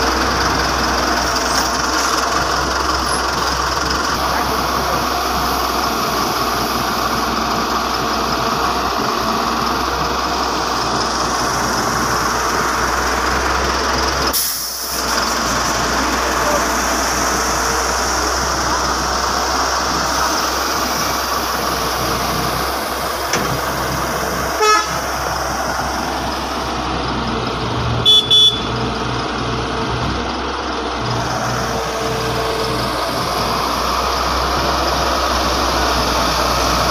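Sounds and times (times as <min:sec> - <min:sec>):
diesel engines running: 0:00.0 - 0:36.9
horn toots: 0:24.6 - 0:25.0, 0:28.0 - 0:28.8.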